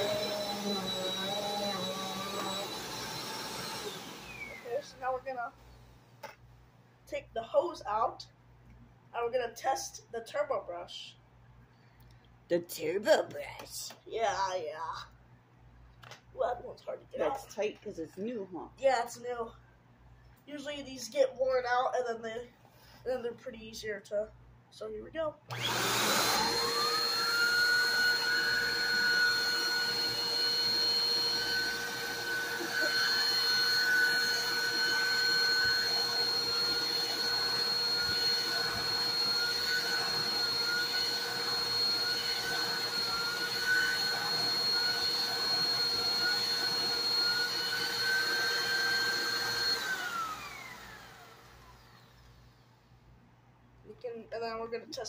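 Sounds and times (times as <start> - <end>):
vacuum cleaner whining: 0.0 - 5.8, 25.5 - 52.7.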